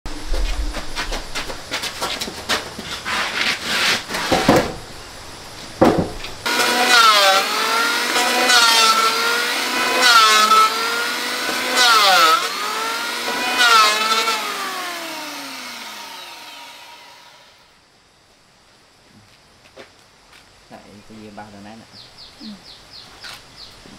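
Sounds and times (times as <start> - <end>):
timber knocking and scraping: 0.1 - 4.9, 5.6 - 6.8
electric hand planer shaving wood: 6.5 - 17.6.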